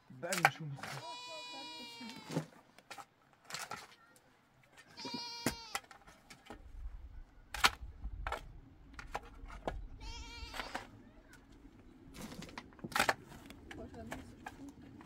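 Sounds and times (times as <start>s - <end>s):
farm animal bleating: 0.9s - 2.5s, 4.9s - 5.9s, 10.0s - 10.9s.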